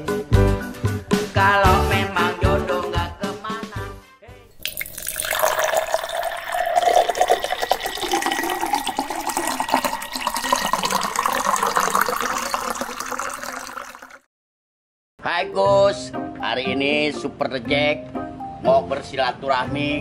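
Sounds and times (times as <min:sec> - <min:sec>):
music: 0:00.0 - 0:04.6, 0:15.2 - 0:20.0.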